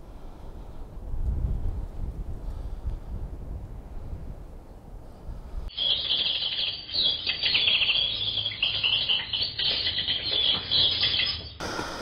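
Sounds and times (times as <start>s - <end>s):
wind on microphone: 0.3s - 5.7s.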